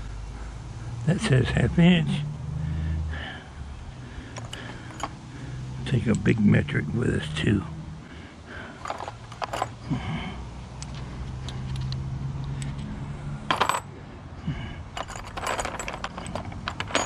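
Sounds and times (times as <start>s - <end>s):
metal sockets clinking: 4.4s - 5.2s, 8.8s - 9.8s, 13.5s - 13.9s, 14.9s - 17.0s.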